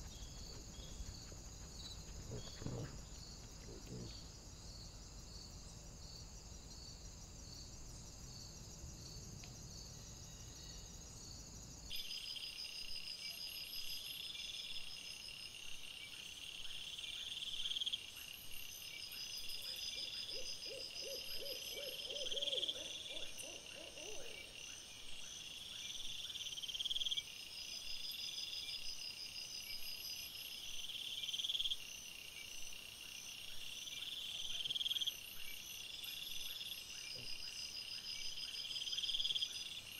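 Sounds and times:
night insects chirping: 0.0s - 39.9s
animal low pulsed calls: 0.1s - 4.1s.

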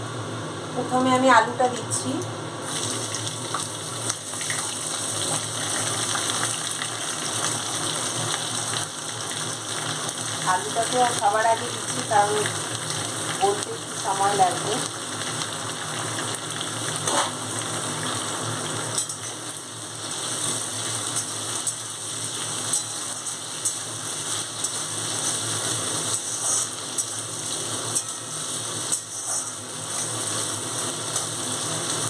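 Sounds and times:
potatoes sizzling in hot oil: 2.6s - 32.0s
utensil scraping a pan: 26.1s - 27.1s, 28.0s - 30.2s.

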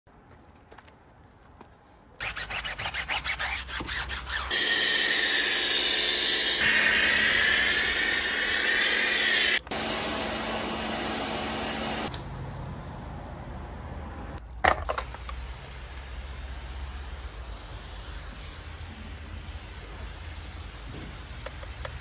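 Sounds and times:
pressure washer spraying foam: 4.1s - 12.1s, 15.0s - 22.0s
water spraying: 5.5s - 12.1s, 14.9s - 22.0s.

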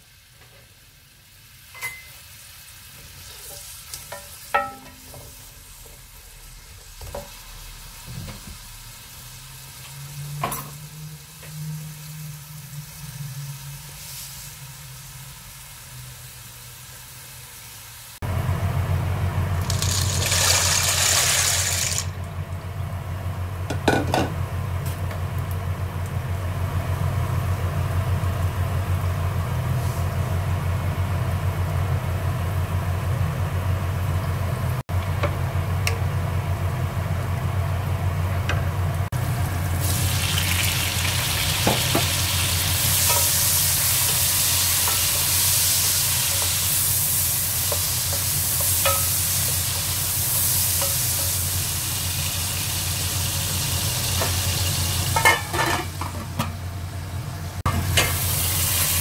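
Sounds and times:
onions sizzling in oil: 0.0s - 22.2s, 23.1s - 59.0s
dry pasta rattle and splash: 19.6s - 22.1s.

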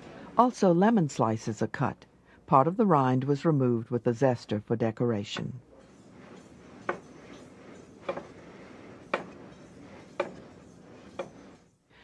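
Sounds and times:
knife knocking on cutting board: 8.0s - 8.3s.

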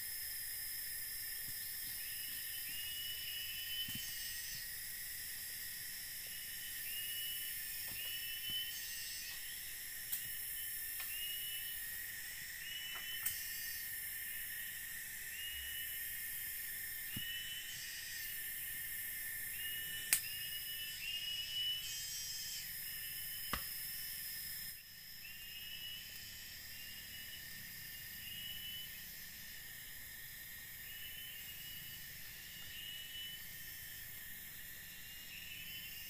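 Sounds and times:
insects droning: 0.0s - 36.0s.

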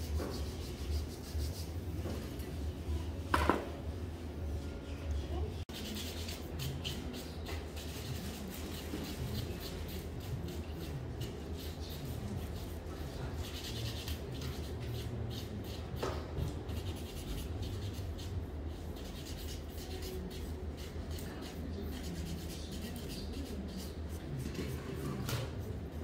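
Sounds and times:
nail file scratching toenails: 5.7s - 12.8s, 13.4s - 15.9s, 16.7s - 25.2s.

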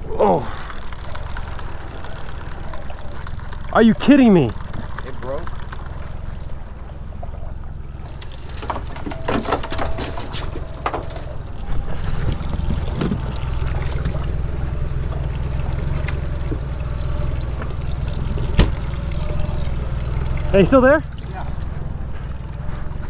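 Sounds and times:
water around boat: 0.0s - 23.0s
wind rumble on microphone: 11.4s - 14.7s.

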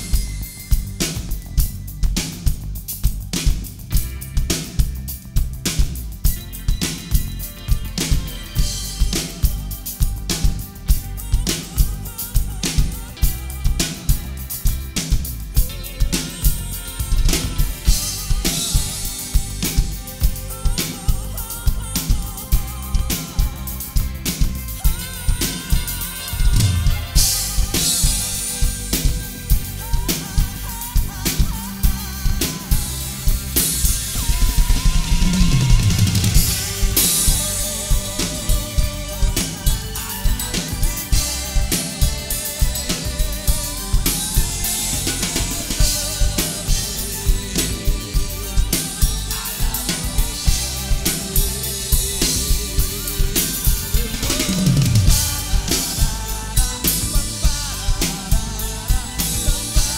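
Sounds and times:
drum kit beat: 0.0s - 59.9s
pop-rock backing track: 0.0s - 59.9s
cymbal crashes: 32.6s - 56.2s.

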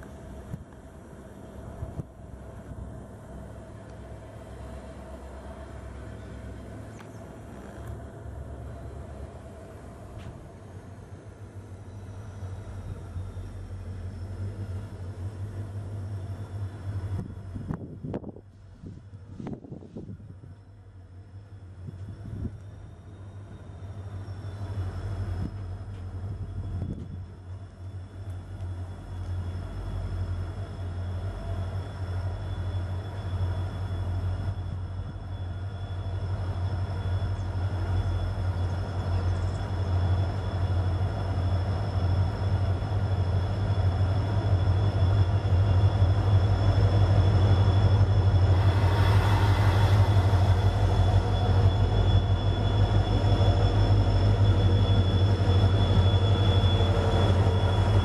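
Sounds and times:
diesel locomotives passing: 0.0s - 58.0s
brief rushing noise: 48.4s - 52.2s.

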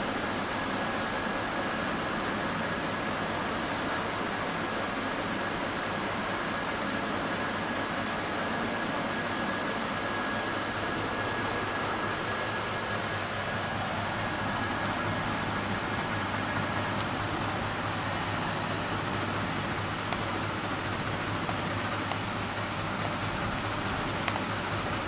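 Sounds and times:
hub motor whirring: 7.4s - 25.0s.

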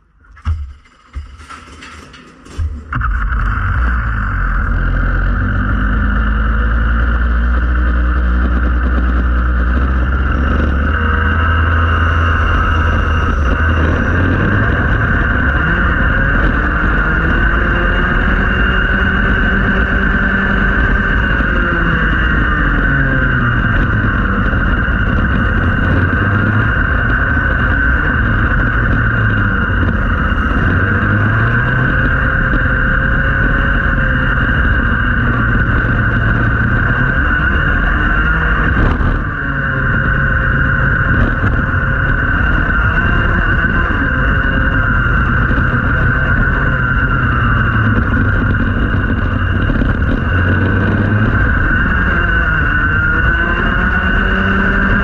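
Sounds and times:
kart engine revving: 0.3s - 55.0s.

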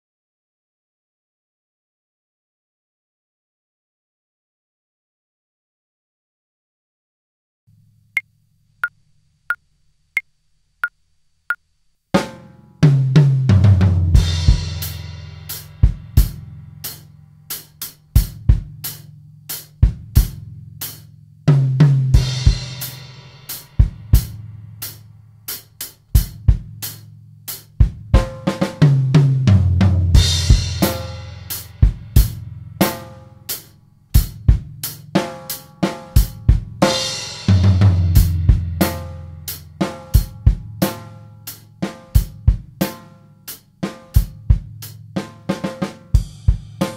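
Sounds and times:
acoustic drum kit playing: 12.2s - 46.9s
bass line backing track: 12.2s - 46.9s.

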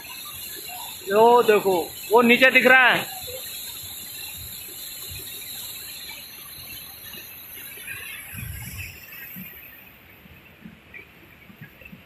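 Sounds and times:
waterfall rushing: 0.0s - 3.9s.

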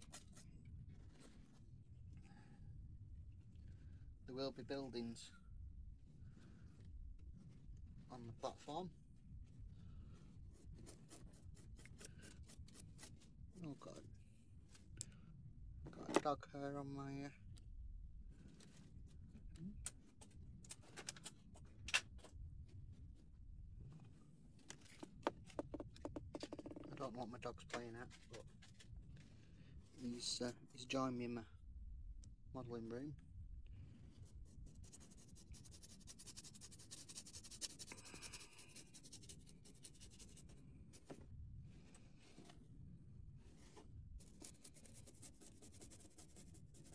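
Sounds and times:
stiff brush scratching on card: 0.0s - 1.2s, 10.4s - 13.3s, 34.1s - 41.1s, 43.4s - 46.9s
low room rumble: 0.0s - 24.8s, 26.9s - 46.9s.

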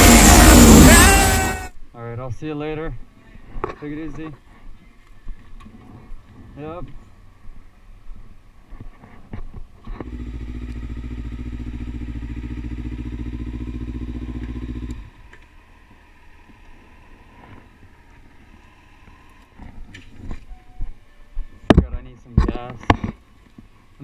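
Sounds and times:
motorcycle engine running: 0.0s - 1.7s, 10.0s - 19.6s.

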